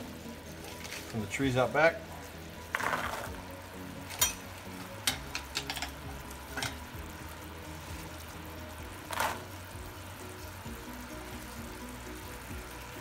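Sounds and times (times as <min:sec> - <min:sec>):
syrup bubbling and sizzling in pan: 0:00.0 - 0:13.0
pecans clicking while stirred: 0:04.0 - 0:07.0.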